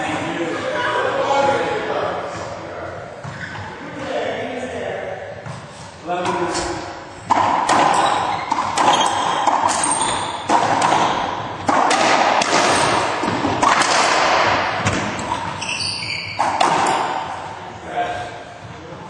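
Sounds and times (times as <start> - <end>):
racquetball cracks echoing: 6.2 - 17.7
high squeaks: 7.7 - 11.1, 15.2 - 17.4.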